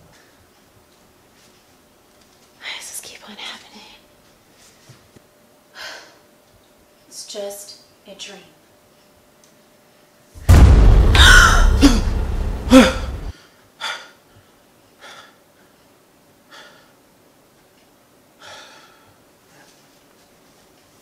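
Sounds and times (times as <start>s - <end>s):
horror scare boom: 10.4s - 13.3s
man breathing heavily: 18.4s - 19.2s.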